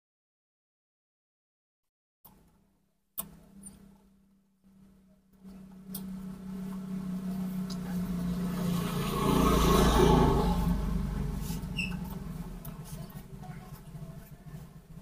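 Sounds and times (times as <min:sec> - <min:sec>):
motor vehicle passing by: 0:05.4 - 0:15.0.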